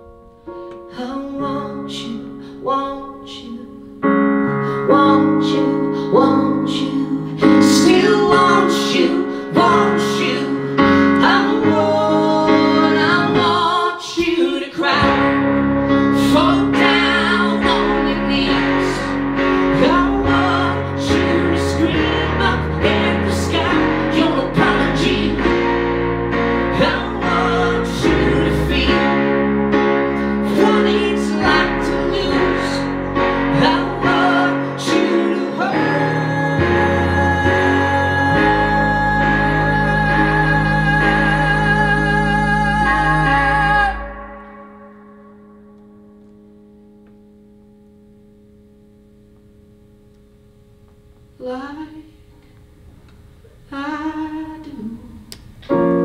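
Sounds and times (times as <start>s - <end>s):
keyboard chords: 0.0s - 53.4s, 55.5s - 56.0s
acoustic guitar chords: 14.8s - 51.5s
deep keyboard bass line: 14.9s - 50.4s.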